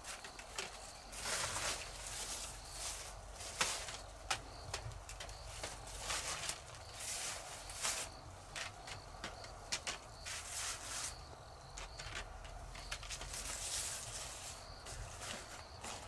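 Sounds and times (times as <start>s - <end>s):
footsteps on dry leaves: 0.0s - 4.3s, 5.4s - 8.2s, 10.1s - 11.2s, 13.0s - 16.0s.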